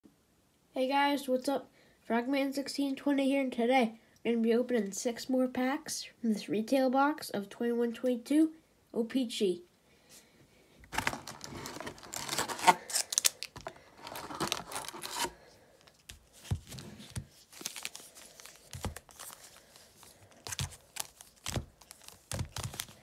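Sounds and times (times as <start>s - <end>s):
plastic wrappers crinkling and tearing: 10.9s - 23.0s.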